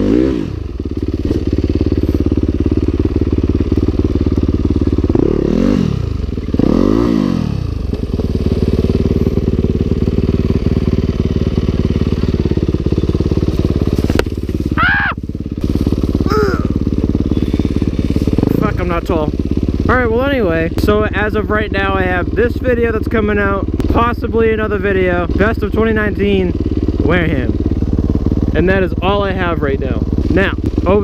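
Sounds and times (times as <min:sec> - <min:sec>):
dirt bike engine revving: 0:00.0 - 0:31.0.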